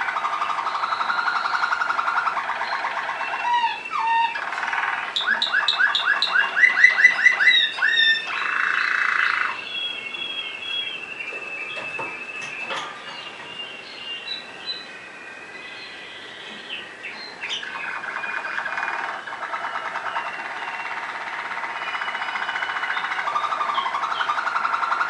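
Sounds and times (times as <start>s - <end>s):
canary singing trills: 0.0s - 25.0s.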